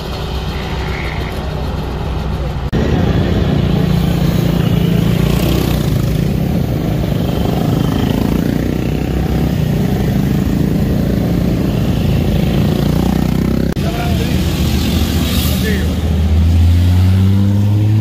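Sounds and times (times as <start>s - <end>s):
quad bikes riding past: 2.8s - 15.8s.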